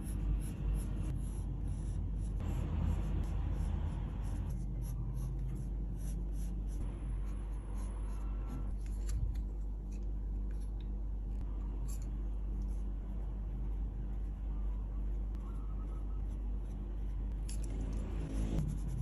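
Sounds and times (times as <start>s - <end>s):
pencil scratching on paper: 0.0s - 8.8s, 15.8s - 19.0s
low steady hum: 0.0s - 19.0s.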